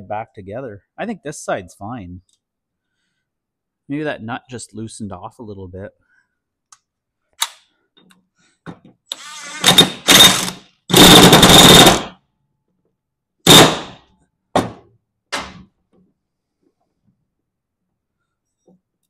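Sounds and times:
impact wrench bursts: 9.1 - 12.2, 13.5 - 14.0.

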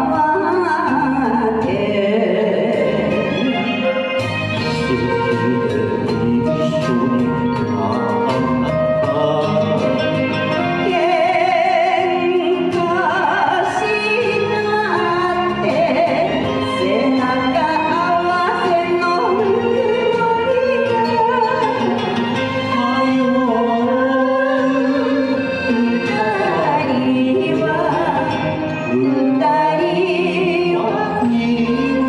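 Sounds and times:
karaoke backing track: 0.0 - 32.0
woman singing: 0.0 - 32.0
man singing: 4.6 - 11.0, 28.8 - 32.0.

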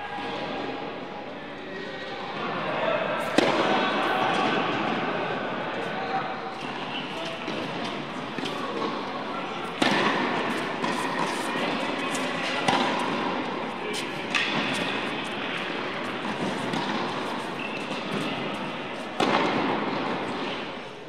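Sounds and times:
tennis ball hit by racquet: 3.3 - 3.7, 9.6 - 20.7.

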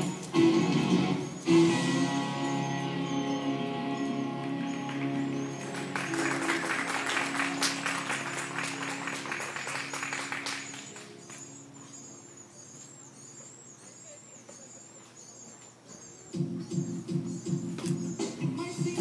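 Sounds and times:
music: 0.0 - 12.7, 16.3 - 19.0
audience clapping: 4.7 - 11.5.

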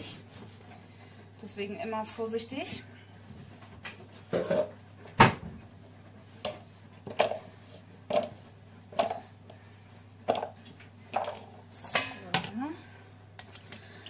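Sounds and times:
kitchenware knocks and clatters: 4.3 - 5.5.

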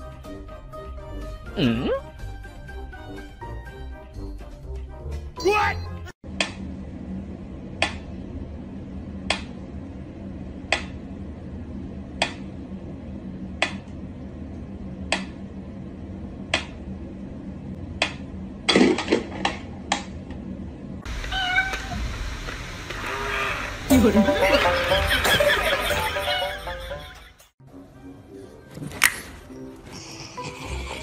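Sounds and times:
low hum: 6.2 - 27.3.

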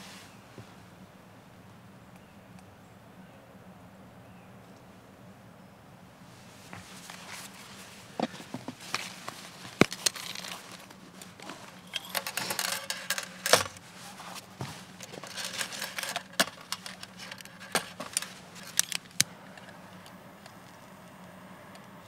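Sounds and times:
gloves and clothing rustling: 6.3 - 19.8
lantern handling clicks and taps: 8.2 - 13.8, 14.4 - 19.3.

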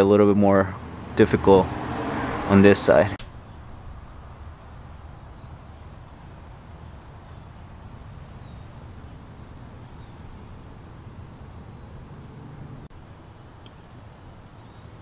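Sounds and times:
small birds chirping: 3.3 - 12.9, 13.6 - 15.0.

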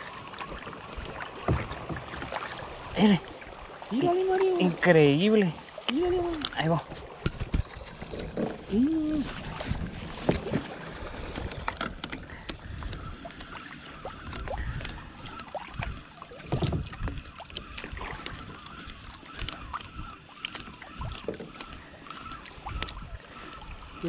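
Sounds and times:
water lapping against kayak hull: 0.0 - 24.0
wind on microphone: 5.9 - 13.4, 14.0 - 20.0.

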